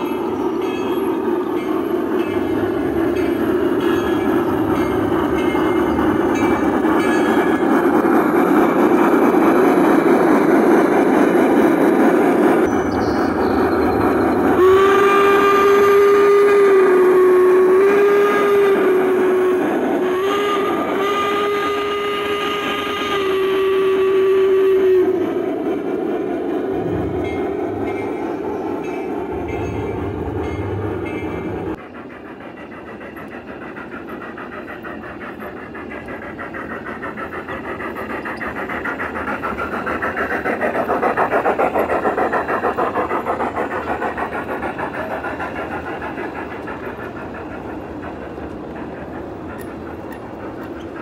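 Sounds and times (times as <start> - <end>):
model train clattering on rails: 0.0 - 16.1, 26.4 - 51.0.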